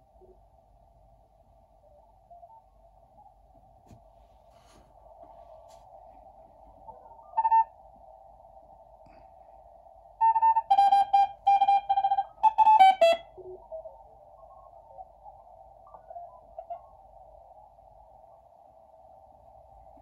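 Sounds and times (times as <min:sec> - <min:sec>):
radio hiss: 0:01.5 - 0:20.0
morse code tones: 0:07.2 - 0:07.7, 0:10.2 - 0:13.8.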